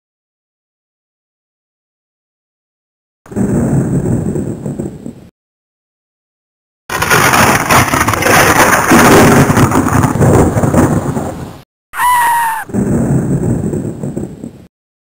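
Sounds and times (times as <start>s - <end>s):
loud rumbling crackle: 3.3s - 5.3s, 6.9s - 11.6s, 12.4s - 14.7s
shrill cartoon scream: 12.0s - 12.7s.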